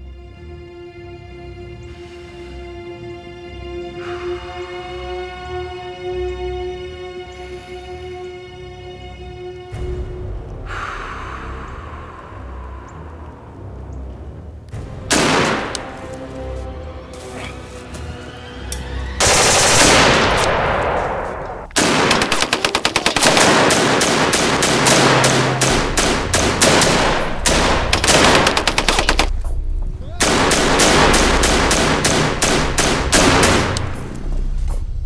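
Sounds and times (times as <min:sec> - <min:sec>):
machine-gun fire: 0:19.2 - 0:20.9, 0:21.8 - 0:29.3, 0:30.2 - 0:34.0.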